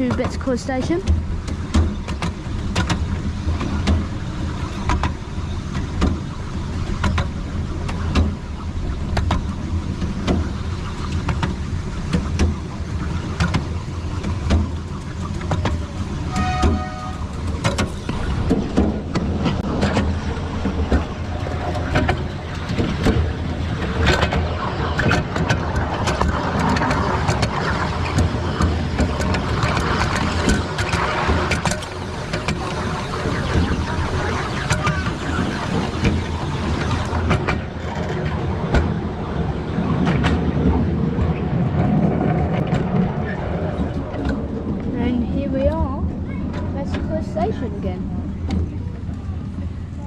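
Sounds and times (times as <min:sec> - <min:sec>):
miniature train rumbling: 0:00.0 - 0:50.0
wheels clacking on rails: 0:00.0 - 0:50.0.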